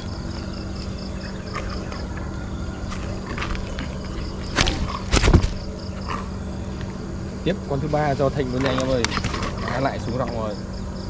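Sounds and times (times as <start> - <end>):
steady low hum: 0.0 - 11.0
heavy thumps: 2.9 - 6.4
sharp knocks: 4.5 - 5.7.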